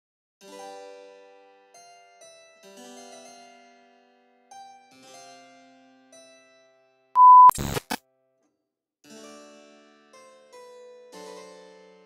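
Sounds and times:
short beep: 7.2s - 7.7s
crackling static bursts: 7.2s - 8.0s.

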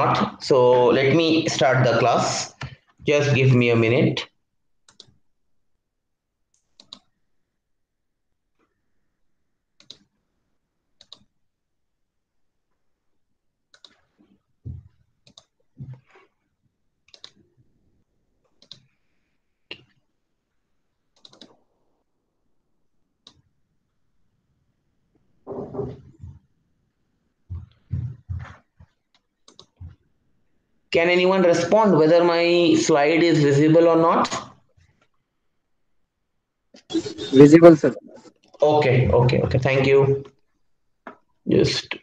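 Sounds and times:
computer mouse clicks: 4.9s - 5.2s, 6.5s - 7.1s, 9.8s - 10.1s, 11.0s - 11.3s, 13.7s - 14.3s, 15.2s - 16.0s, 17.1s - 17.4s, 18.4s - 19.0s, 21.1s - 21.6s, 23.2s - 23.4s, 28.8s - 30.0s.

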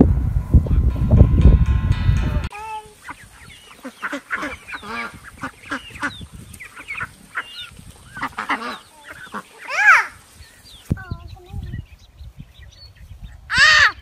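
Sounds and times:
ducks quacking: 2.8s - 10.6s.

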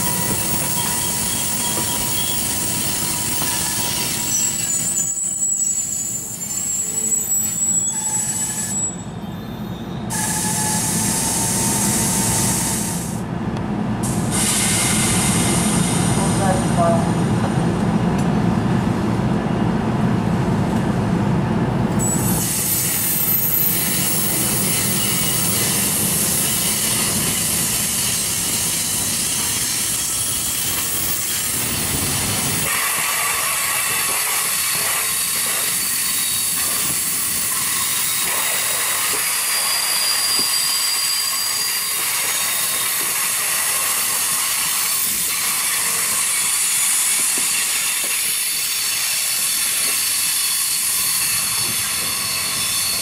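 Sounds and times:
wheel squeals: 0.0s - 12.4s, 22.0s - 31.9s, 34.7s - 43.2s, 43.9s - 53.0s
train low rumble: 0.0s - 53.0s
high hiss of air and wheels: 10.1s - 13.2s, 14.0s - 16.3s, 22.3s - 53.0s.

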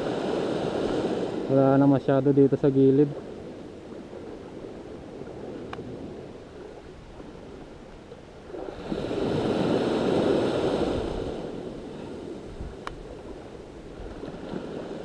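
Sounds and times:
low steady sea wash: 0.0s - 15.0s
surf wave washing up sand: 8.5s - 12.5s.

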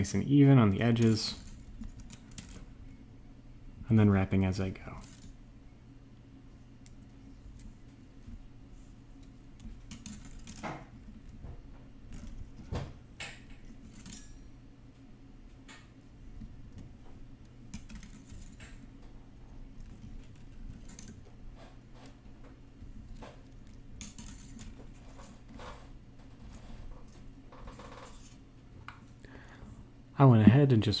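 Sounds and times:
faint low hum: 0.0s - 31.0s
wire clicking and scraping: 0.8s - 2.7s, 6.8s - 14.5s, 15.7s - 29.1s.

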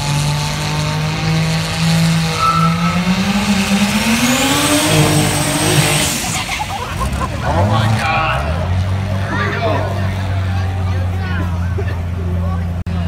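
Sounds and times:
race car engine accelerating: 0.0s - 13.0s
high whistle: 2.2s - 4.2s.

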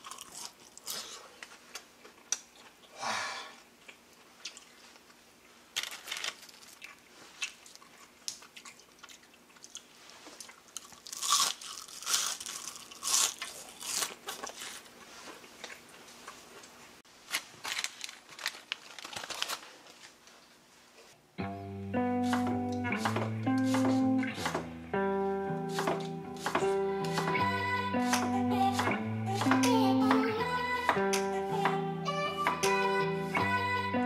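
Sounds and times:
crunching of fried fritters: 0.0s - 2.8s, 3.8s - 14.9s.

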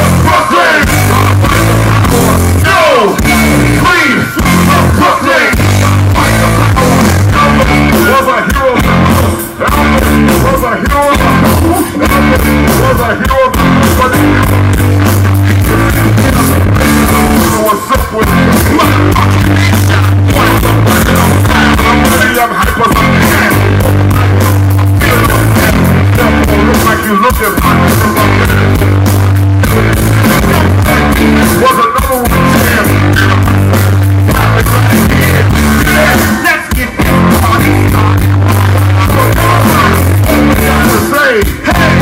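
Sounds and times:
rap-rock band playing live: 0.0s - 42.0s
vocalists singing: 0.0s - 42.0s.

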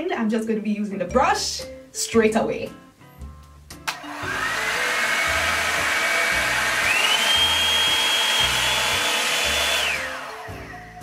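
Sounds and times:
blower motor whining: 4.0s - 10.8s.

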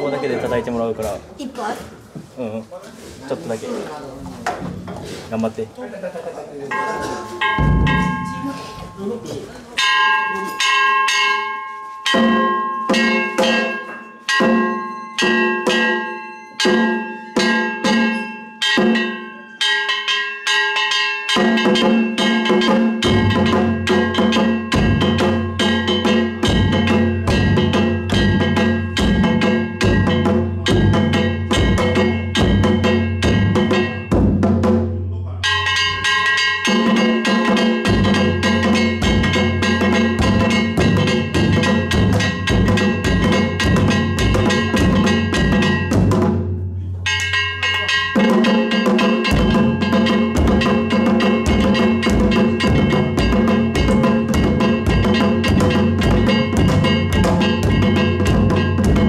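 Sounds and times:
taiko drums beating: 6.7s - 9.0s, 12.0s - 19.3s, 19.9s - 59.0s
gong strokes: 6.7s - 9.2s
big drum deep beats: 7.4s - 9.0s, 23.0s - 35.2s, 37.5s - 46.7s, 48.3s - 59.0s.

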